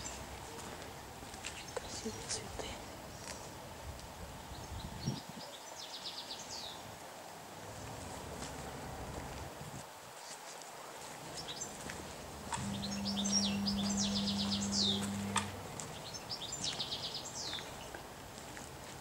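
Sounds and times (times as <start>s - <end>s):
songbird singing: 1.4s - 3.6s, 4.4s - 6.9s, 11.3s - 18.0s
low steady hum: 12.0s - 16.2s.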